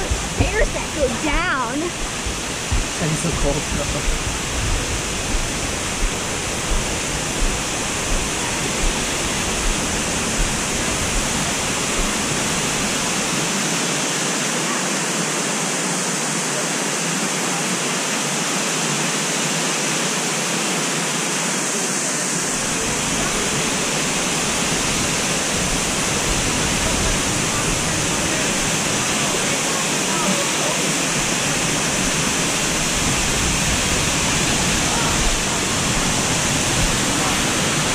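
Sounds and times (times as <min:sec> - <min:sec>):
footsteps on wooden boardwalk: 0:00.0 - 0:03.0, 0:03.7 - 0:12.2
waterfall rushing: 0:00.0 - 0:37.9.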